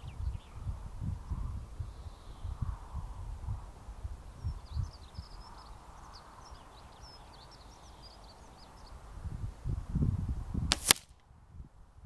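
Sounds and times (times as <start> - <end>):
birds chirping faintly: 0.0 - 9.1
pellet hitting cardboard: 10.7 - 11.0
air rifle shot: 10.7 - 11.1.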